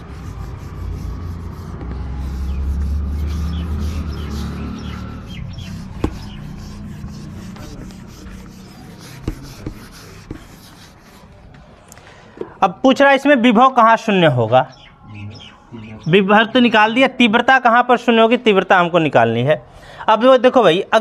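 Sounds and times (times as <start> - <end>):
eraser rubbing on whiteboard: 0.0 - 11.4
sharp knocks: 5.9 - 6.4.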